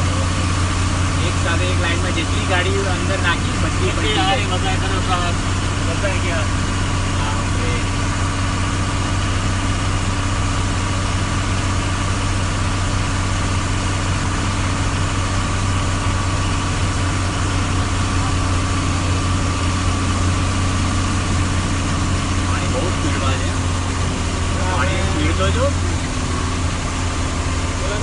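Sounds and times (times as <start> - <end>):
large vehicle engine droning: 0.0 - 28.0.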